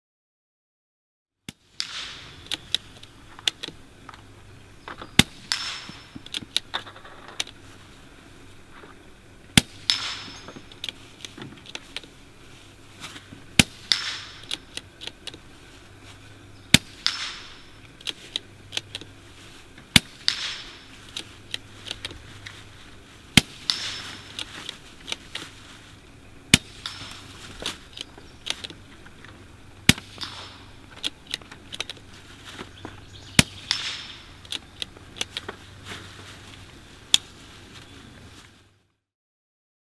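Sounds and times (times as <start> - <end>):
suppressed rifle shots: 1.5 - 3.8, 5.0 - 7.5, 9.5 - 10.8, 13.5 - 14.8, 16.7 - 17.9, 19.9 - 22.1, 23.3 - 25.4, 26.5 - 28.6, 29.8 - 31.9, 33.4 - 35.5.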